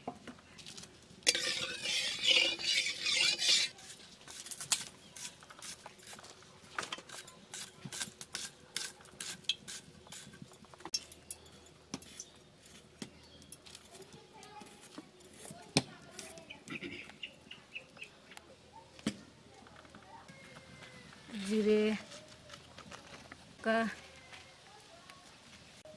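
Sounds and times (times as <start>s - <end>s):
metal spatula scraping a pan: 1.2s - 5.8s.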